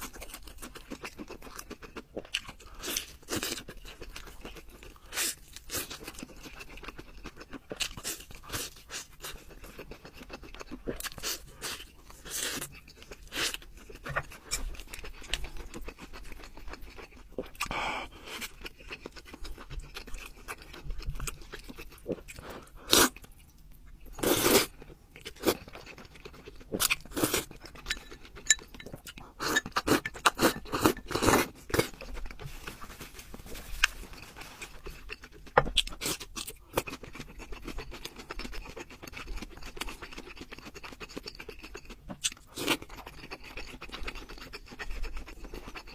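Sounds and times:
wet chewing: 0:00.0 - 0:32.8, 0:33.6 - 0:45.9.

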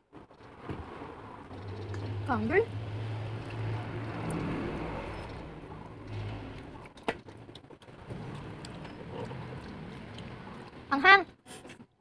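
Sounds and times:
eating and chewing noodles: 0:03.4 - 0:10.9.

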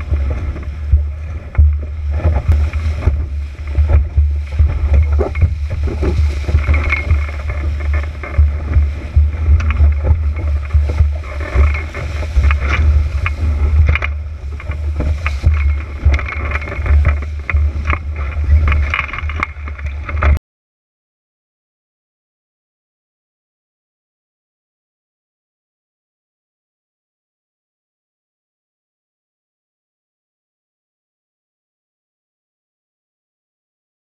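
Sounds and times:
hull slapping on waves: 0:00.0 - 0:20.4
rushing water and spray: 0:00.0 - 0:20.4
wind buffeting microphone: 0:00.0 - 0:20.4.

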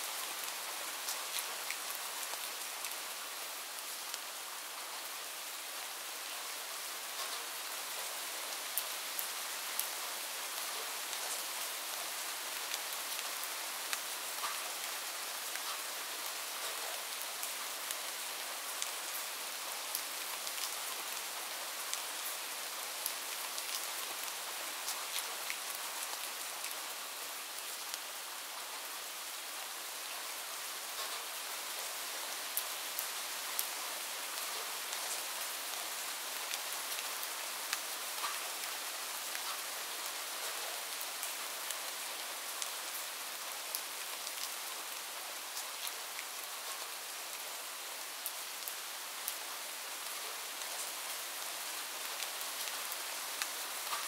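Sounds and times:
light ticks and crackles: 0:07.1 - 0:08.1, 0:12.6 - 0:14.9, 0:15.5 - 0:15.9, 0:16.6 - 0:18.0, 0:30.9 - 0:31.9, 0:36.4 - 0:39.8, 0:50.1 - 0:54.0.

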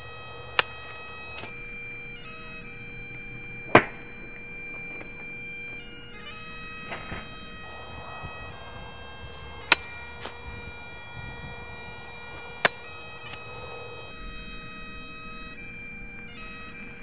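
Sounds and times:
sharp crack: 0:00.0 - 0:01.6, 0:03.7 - 0:05.2, 0:06.9 - 0:14.1
bagpipe music: 0:00.0 - 0:17.0.

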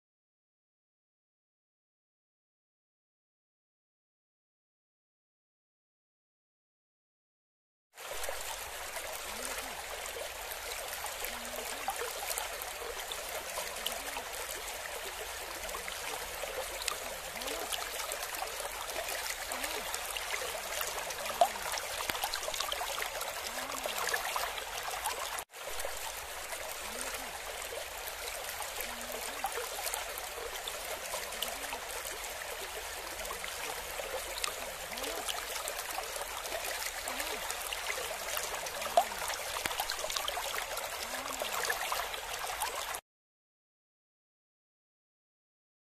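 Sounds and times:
running water splashing: 0:08.5 - 0:43.0.

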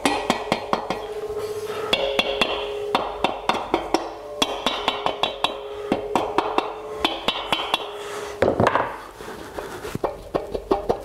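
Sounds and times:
mallet tapping metal: 0:00.0 - 0:08.9.

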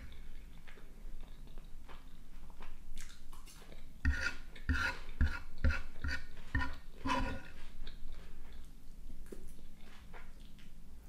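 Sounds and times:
fork scraping on wooden board: 0:04.0 - 0:07.6.

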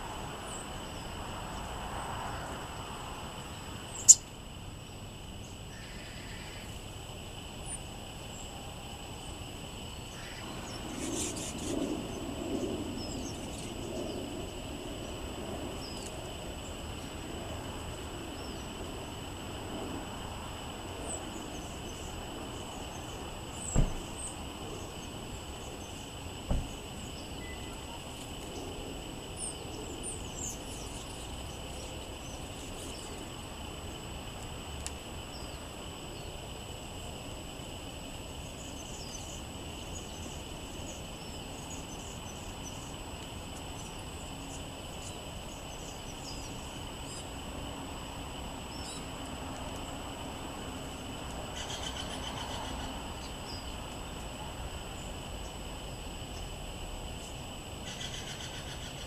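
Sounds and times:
steady high hum: 0:00.0 - 0:59.0
bird chirps: 0:03.9 - 0:04.3, 0:27.1 - 0:28.0.

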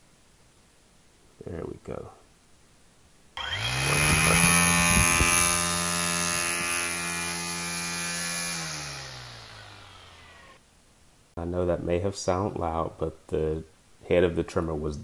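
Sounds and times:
string trimmer motor whine: 0:03.4 - 0:10.6.

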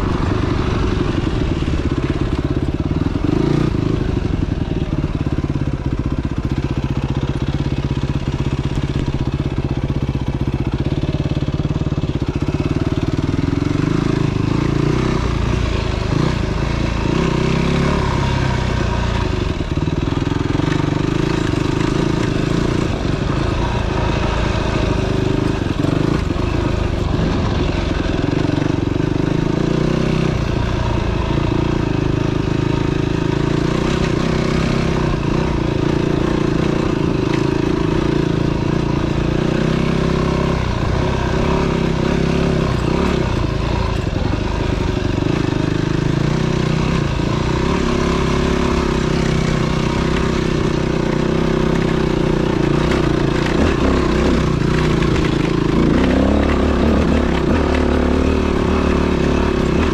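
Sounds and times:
dirt bike engine revving: 0:00.0 - 0:10.0, 0:10.7 - 0:59.9.

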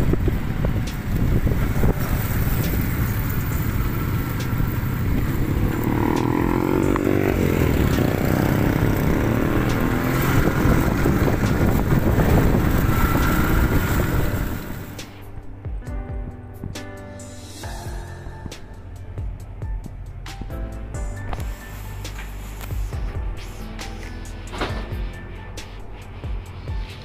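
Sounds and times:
motorcycles passing: 0:00.0 - 0:15.4
road traffic rumble: 0:00.0 - 0:27.0.

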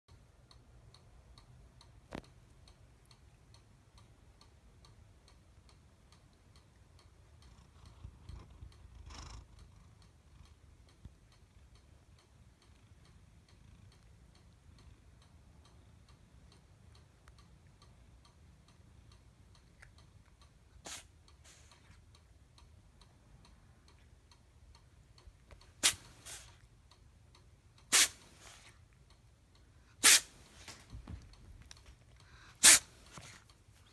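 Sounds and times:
cat sneezing: 0:20.8 - 0:21.6, 0:25.8 - 0:26.5, 0:27.9 - 0:28.7, 0:30.0 - 0:30.4, 0:32.6 - 0:33.4.

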